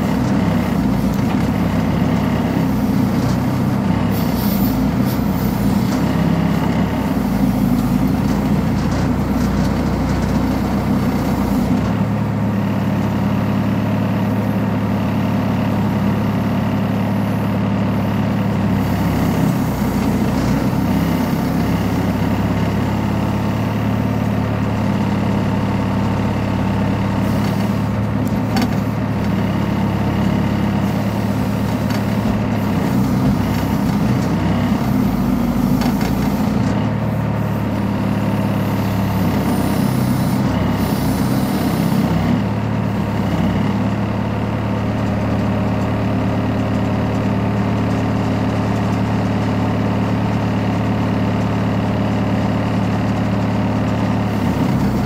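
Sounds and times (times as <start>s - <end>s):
backhoe diesel engine running: 0.0s - 55.0s.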